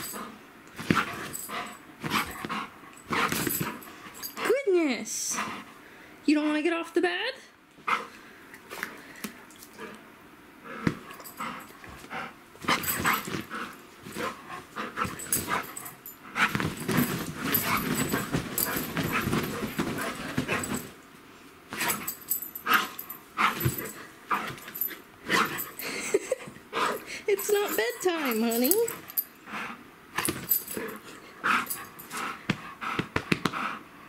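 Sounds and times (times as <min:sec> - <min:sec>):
dog paws scrabbling: 0:00.0 - 0:04.7, 0:11.0 - 0:21.0, 0:21.7 - 0:25.8, 0:27.3 - 0:29.2
quilt rustling: 0:11.5 - 0:21.0.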